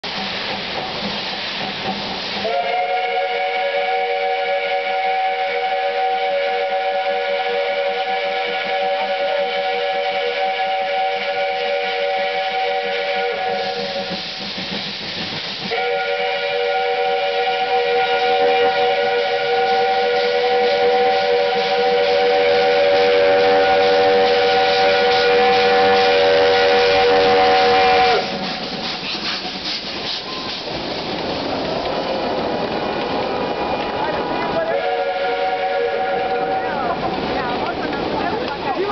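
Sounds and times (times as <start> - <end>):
steam hiss: 0.0 - 38.9
steam locomotive whistle: 2.4 - 14.4, 15.6 - 30.7, 34.5 - 36.9
carriages rattling over track: 12.9 - 15.9, 18.6 - 38.9.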